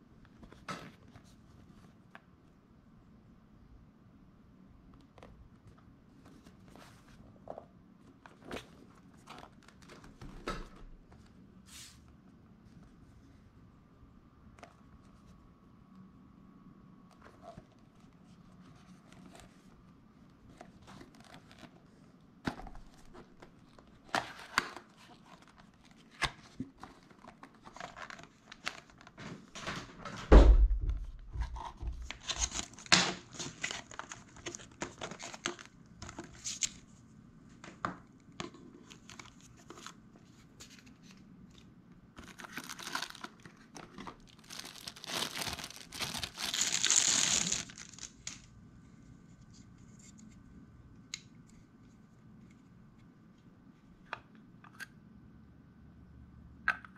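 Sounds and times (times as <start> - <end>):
paper rustling: 31.3 - 36.9, 42.2 - 48.4
plastic bag crinkling: 42.2 - 48.5.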